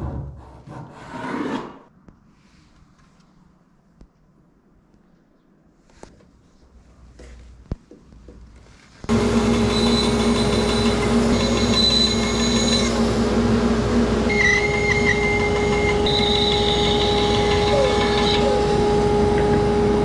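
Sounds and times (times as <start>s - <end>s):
bandsaw cutting wood: 9.1s - 13.0s, 14.3s - 20.0s.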